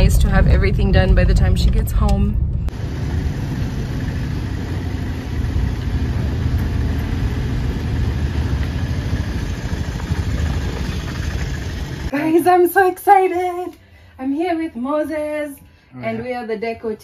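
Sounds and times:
vehicle engine rumble with hiss: 2.7s - 12.1s.

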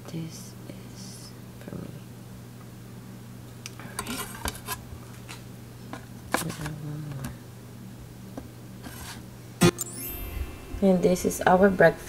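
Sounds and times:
steady low hum: 4.8s - 12.0s.

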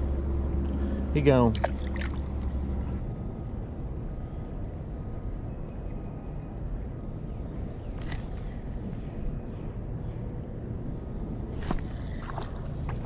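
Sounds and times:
river water rushing: 1.5s - 2.6s.

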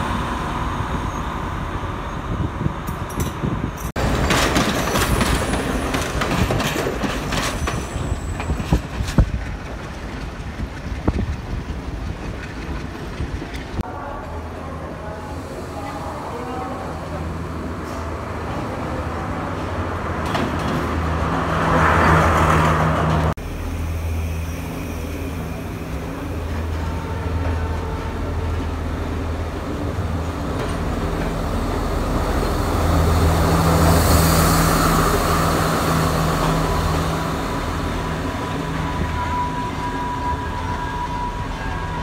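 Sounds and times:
diesel train engines droning: 0.0s - 42.0s
train rumbling on rails: 0.0s - 42.0s.

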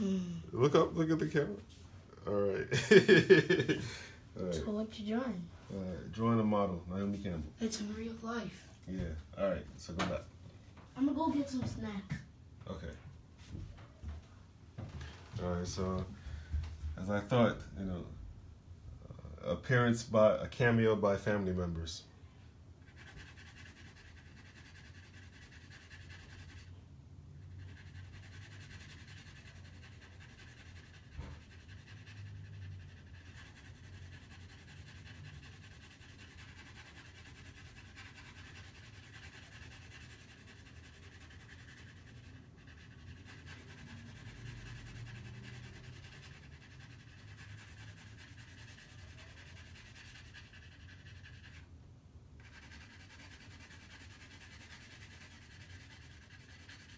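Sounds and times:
pencil shading on paper: 22.8s - 26.8s, 27.4s - 51.7s, 52.4s - 56.9s.

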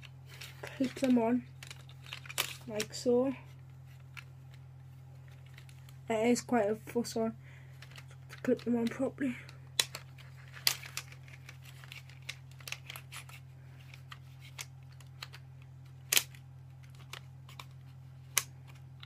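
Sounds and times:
plastic clicks and rattles: 0.0s - 2.9s, 9.8s - 15.4s
steady low hum: 0.0s - 19.0s.

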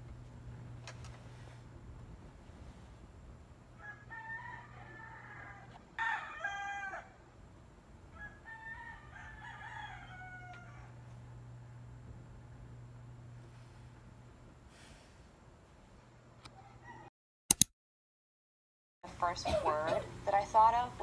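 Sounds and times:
roosters crowing: 3.7s - 7.4s, 8.0s - 11.8s, 16.5s - 17.1s.

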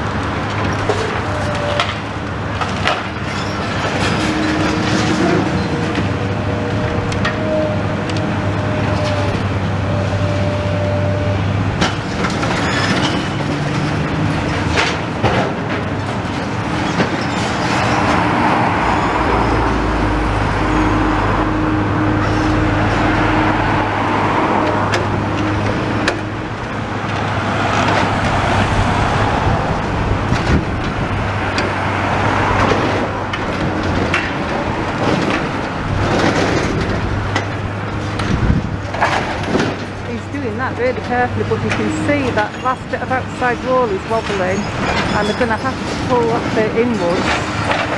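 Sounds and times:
excavator diesel engine running: 0.0s - 47.9s
clanks and crunches: 11.7s - 18.8s, 30.2s - 43.0s.

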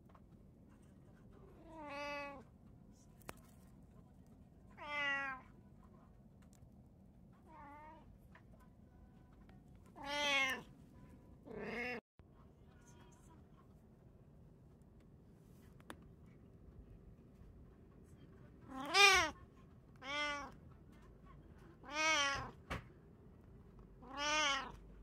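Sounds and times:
cat meowing: 1.6s - 2.4s, 4.8s - 5.5s, 10.0s - 10.7s, 11.5s - 12.0s, 18.7s - 19.4s, 20.0s - 20.6s, 21.8s - 22.6s, 24.0s - 24.8s.

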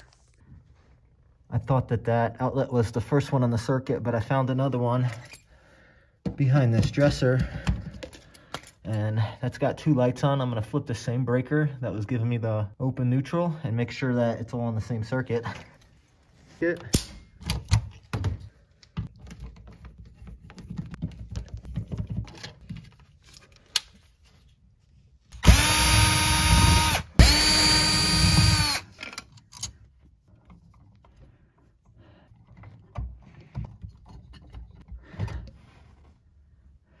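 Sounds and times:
power drill motor whine: 25.4s - 28.9s.

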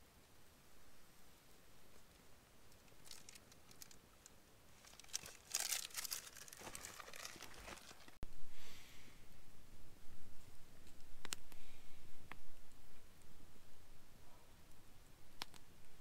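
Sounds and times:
crinkling and rustling: 1.9s - 8.2s.

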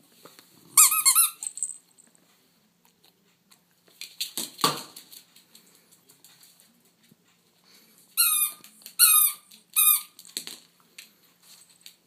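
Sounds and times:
squeaky toy squeaking: 0.8s - 1.5s, 8.2s - 10.2s.

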